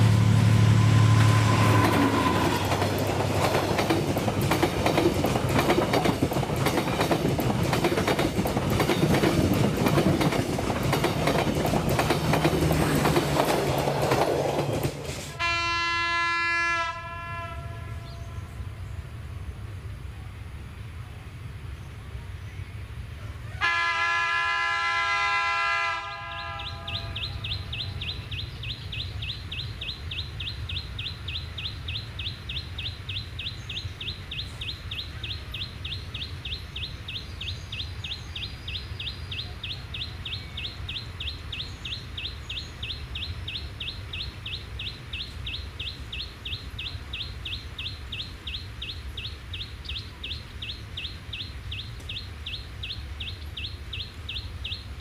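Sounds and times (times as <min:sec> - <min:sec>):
train horn blast: 0:00.0 - 0:03.0, 0:15.3 - 0:18.8, 0:23.6 - 0:27.4
low rumble: 0:00.0 - 0:04.3.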